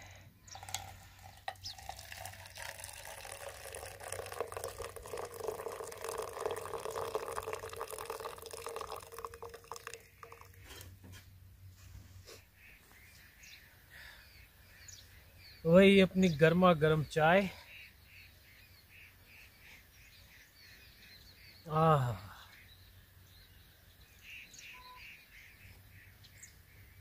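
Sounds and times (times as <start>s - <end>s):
liquid pouring into metal mug: 0.5s - 10.8s.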